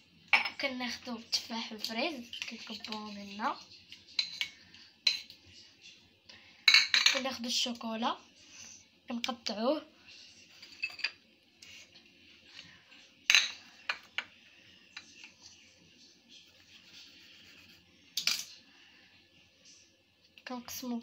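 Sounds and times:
knife and dishes clinking: 4.2s - 5.3s, 10.6s - 11.2s, 18.2s - 18.6s.

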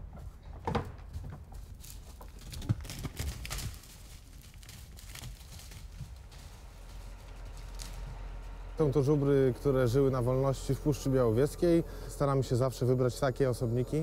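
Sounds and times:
hooves thudding on forest floor: 0.0s - 11.0s.

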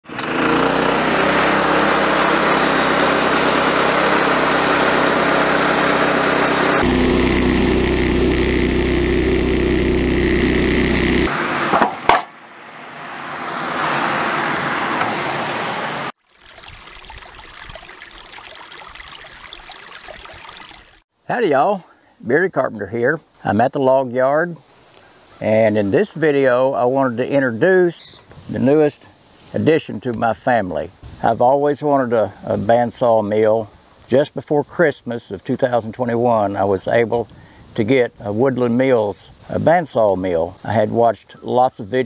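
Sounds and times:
sawmill engine cutting log: 0.0s - 13.0s
shallow stream rushing: 0.6s - 7.4s
sharp knock: 11.7s - 12.3s.

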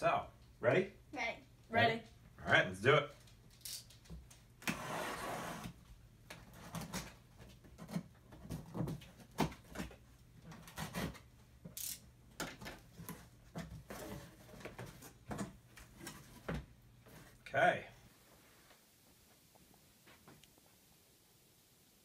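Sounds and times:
cardboard box scraped and handled: 4.7s - 5.8s
packing tape being slit: 11.8s - 12.0s.

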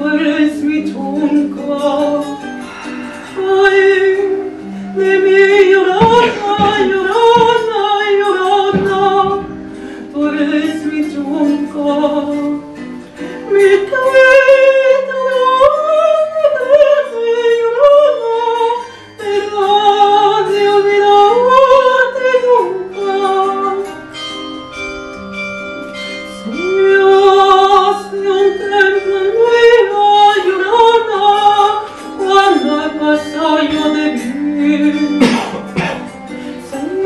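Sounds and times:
countertenor singing with vibrato: 0.0s - 24.0s
instrumental accompaniment: 0.0s - 37.0s.

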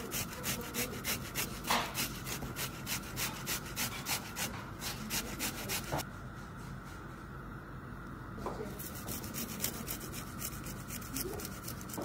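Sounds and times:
tomato rasping on metal grater: 0.0s - 6.0s, 8.8s - 12.0s.

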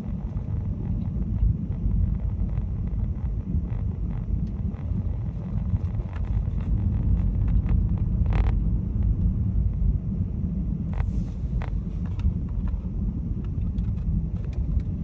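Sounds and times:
car rumbling over snowy road: 0.0s - 15.0s.

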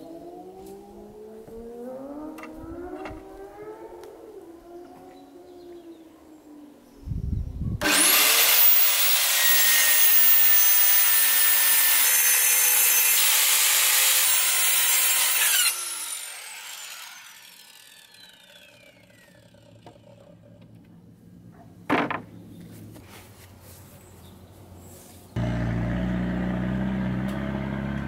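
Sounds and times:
electric power saw cutting wood: 7.8s - 20.1s, 25.4s - 28.0s
thump: 21.9s - 22.3s.

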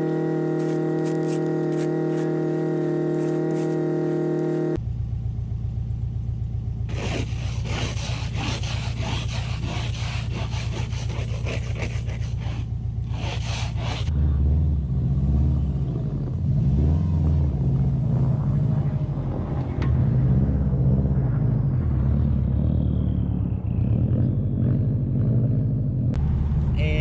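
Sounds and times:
car engine idling and revving: 0.0s - 27.0s
snow shovel scraping snow: 0.4s - 4.2s, 6.9s - 14.1s.

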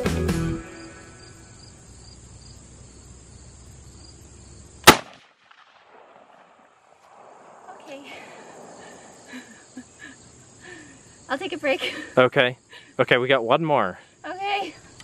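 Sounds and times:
faint insects chirping: 0.6s - 15.0s
rifle shot crack: 4.8s - 9.2s.

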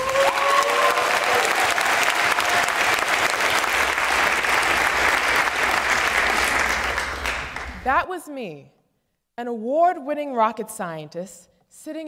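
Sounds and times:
audience applauding and cheering: 0.0s - 7.9s.

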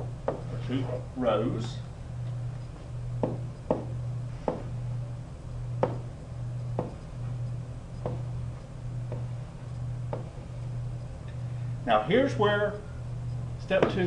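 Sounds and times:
steady low hum: 0.0s - 14.0s
pen tapping on paper: 8.0s - 8.3s.

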